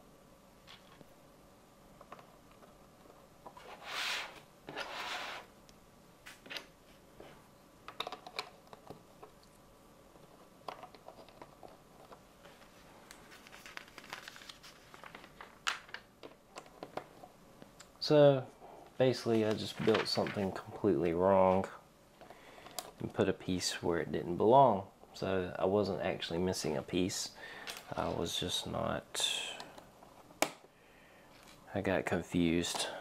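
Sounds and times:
rustling scrapes: 0:03.6 - 0:05.5.

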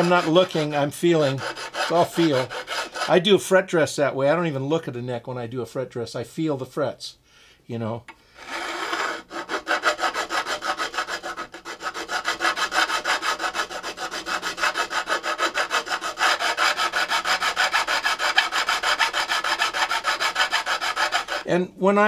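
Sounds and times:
file scraping on wood: 0:00.0 - 0:03.3, 0:08.4 - 0:21.5.

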